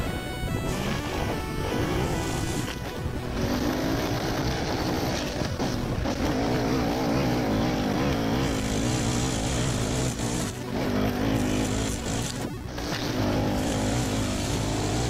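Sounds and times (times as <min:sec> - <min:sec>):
brushcutter engine running: 0:00.0 - 0:15.0
line head cutting grass: 0:00.0 - 0:15.0.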